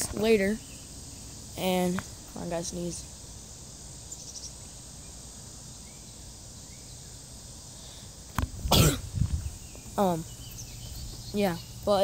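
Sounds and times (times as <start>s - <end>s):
faint outdoor background: 0.0s - 12.0s
person coughing: 8.7s - 9.1s.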